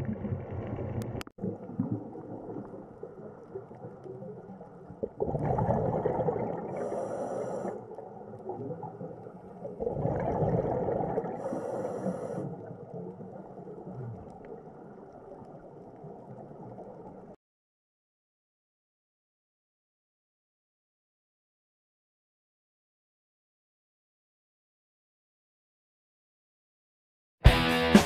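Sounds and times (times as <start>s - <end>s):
diver breathing through regulator: 6.7s - 8.0s, 11.4s - 12.7s.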